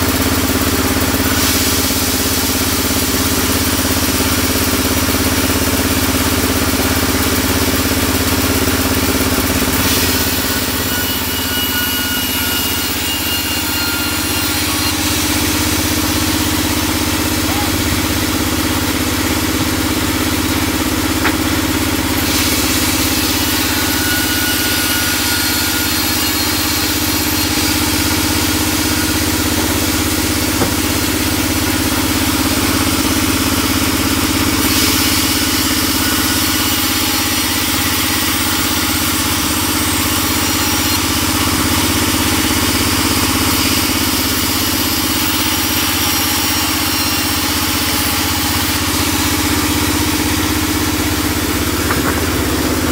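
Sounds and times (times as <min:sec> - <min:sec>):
band saw humming: 0:00.0 - 0:52.9
saw blade hissing through wood: 0:01.0 - 0:03.8, 0:09.6 - 0:11.4, 0:12.0 - 0:31.8.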